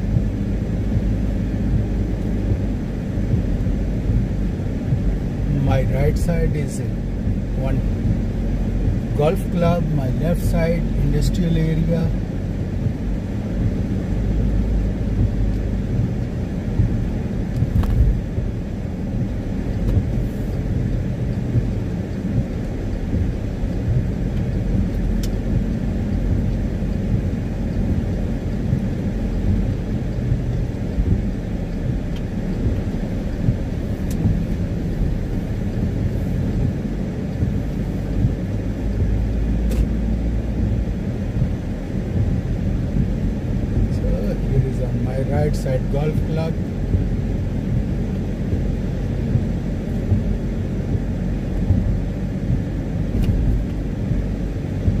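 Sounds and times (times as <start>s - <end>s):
car driving on wet road: 0.0s - 55.0s
faint ticks: 19.2s - 28.0s.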